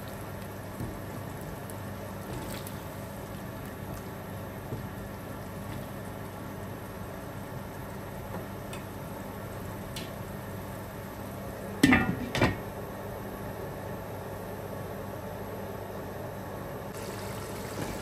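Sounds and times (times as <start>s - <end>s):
pot sizzling: 0.0s - 11.3s, 17.0s - 18.0s.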